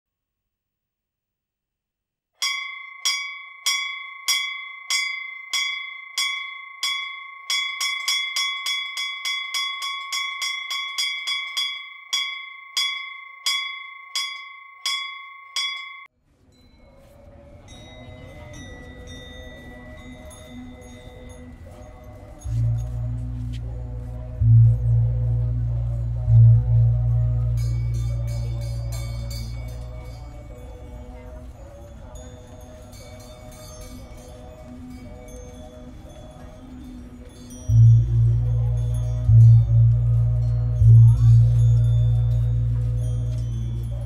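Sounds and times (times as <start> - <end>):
bicycle bell ringing: 2.4 - 17.0, 17.6 - 23.1
faint soft music: 16.1 - 44.0.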